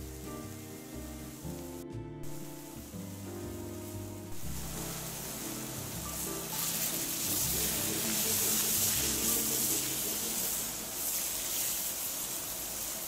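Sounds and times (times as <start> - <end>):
background music: 0.0 - 11.0
rice grains pouring into pan: 2.2 - 13.0.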